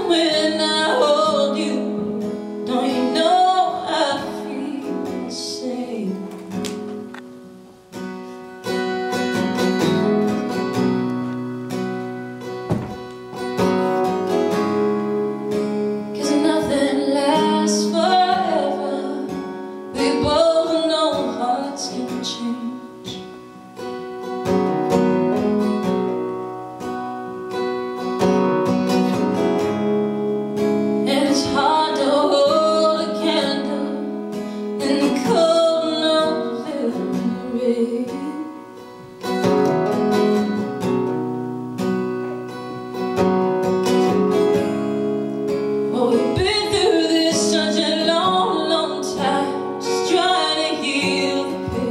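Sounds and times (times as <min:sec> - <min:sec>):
woman singing: 0:00.0 - 0:06.9, 0:15.9 - 0:23.5, 0:31.0 - 0:39.4, 0:45.9 - 0:51.9
strummed acoustic guitar: 0:00.0 - 0:51.9.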